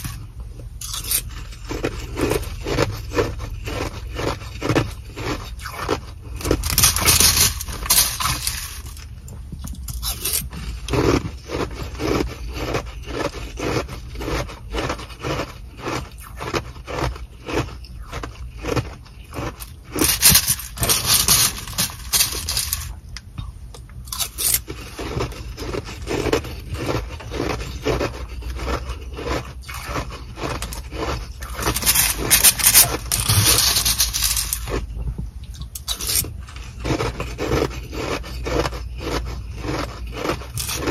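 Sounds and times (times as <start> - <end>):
plastic spoon scooping ice: 0.0 - 9.1, 9.9 - 23.0, 24.1 - 34.9, 35.5 - 40.9
chewing ice crunches: 0.0 - 23.0, 24.0 - 40.9
plastic bag crinkling: 6.4 - 9.0, 19.4 - 23.0, 30.4 - 34.8.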